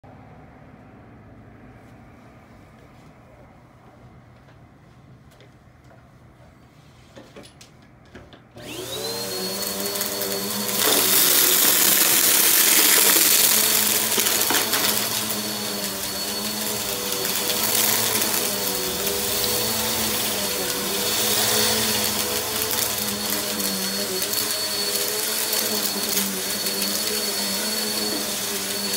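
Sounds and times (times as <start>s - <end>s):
vacuum cleaner motor whining: 8.6s - 28.9s.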